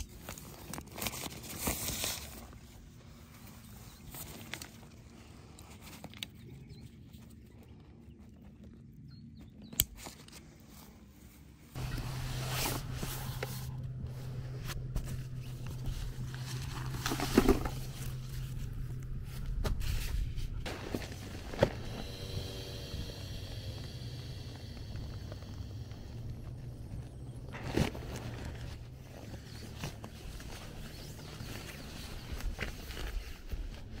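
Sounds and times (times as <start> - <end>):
nylon fabric rustling: 10.4 - 22.0, 26.4 - 34.0
steady low hum: 10.4 - 34.0.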